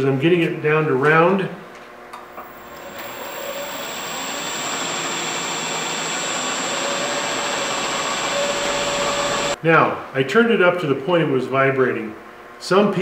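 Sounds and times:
wood lathe spinning with high whine: 2.4 - 9.6
gouge cutting wood: 2.5 - 9.6.

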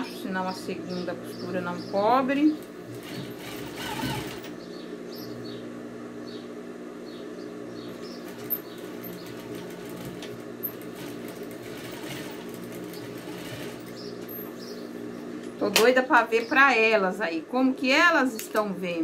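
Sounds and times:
sewing machine stitching: 2.9 - 4.6, 8.2 - 14.4.

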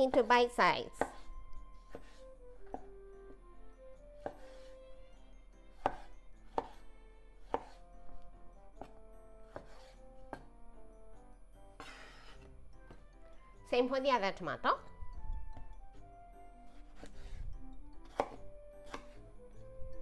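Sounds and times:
knife knocking on wooden board: 4.2 - 4.6, 5.8 - 6.8, 7.5 - 7.8, 8.8 - 10.5.

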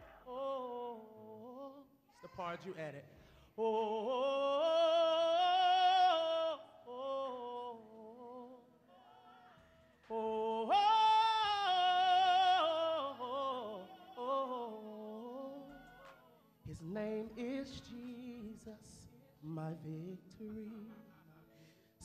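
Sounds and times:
man singing solo: 10.1 - 15.8.

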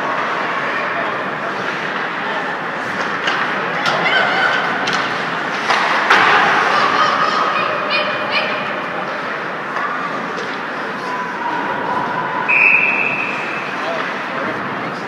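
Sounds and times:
voices of players and spectators: 0.0 - 15.0
skates scraping ice: 1.5 - 7.9.

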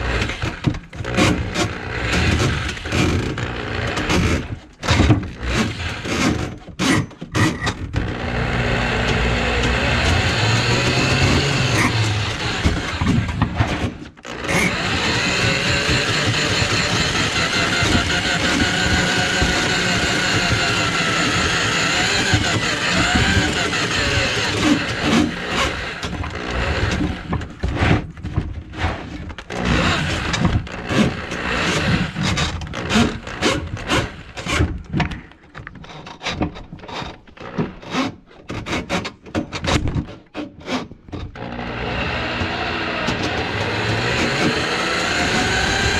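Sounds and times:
drain snake cable running: 14.3 - 27.3, 41.4 - 45.9.

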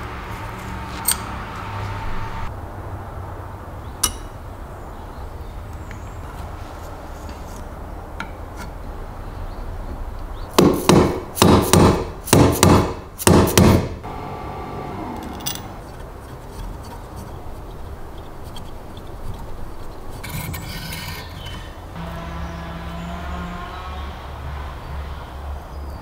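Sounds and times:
stapler parts knocking on wood: 10.6 - 14.0
allen key turning screw: 15.2 - 21.9.

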